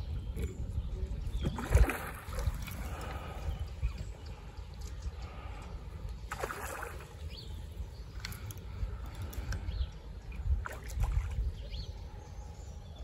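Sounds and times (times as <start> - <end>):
wind rumble on microphone: 0.0 - 13.0
fish splashing in water: 6.3 - 7.2.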